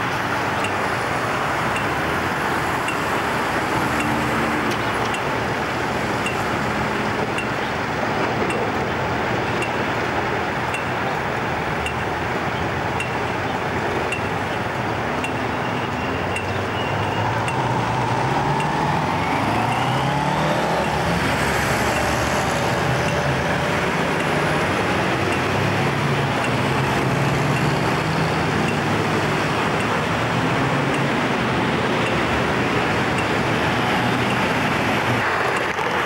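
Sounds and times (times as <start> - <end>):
road traffic: 0.0 - 36.0
vehicle engine pulling away: 16.1 - 36.0.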